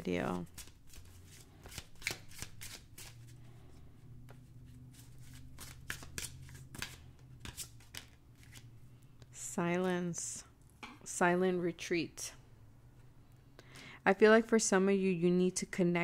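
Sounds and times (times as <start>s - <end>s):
cards being shuffled: 0.4s - 3.3s, 4.3s - 8.7s.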